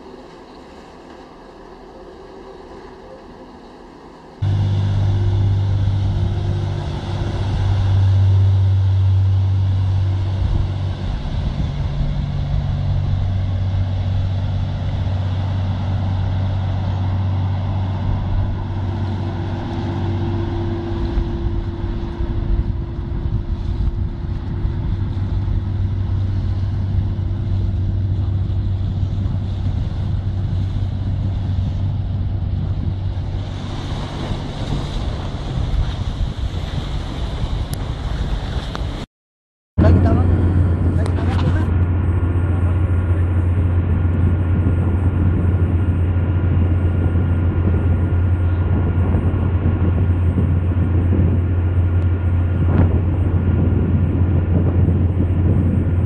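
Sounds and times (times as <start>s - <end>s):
boat engines droning: 0.0s - 39.1s, 39.8s - 56.0s
rushing water noise: 0.0s - 39.1s.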